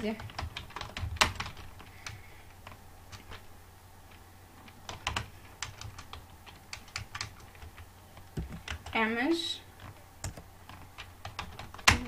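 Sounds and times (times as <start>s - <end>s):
keyboard typing: 0.0s - 3.4s, 4.1s - 9.1s, 9.8s - 12.0s
low steady hum: 0.0s - 12.0s.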